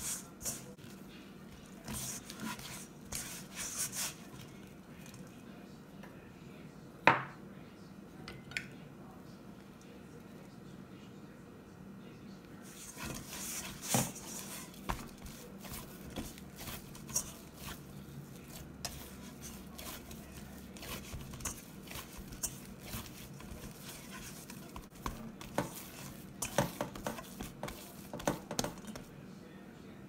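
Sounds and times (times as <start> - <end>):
dough squishing: 0.0 - 5.3, 12.6 - 29.1.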